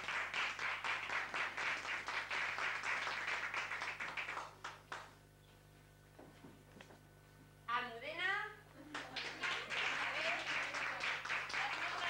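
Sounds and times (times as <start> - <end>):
people clapping: 0.0 - 5.2, 8.8 - 12.0.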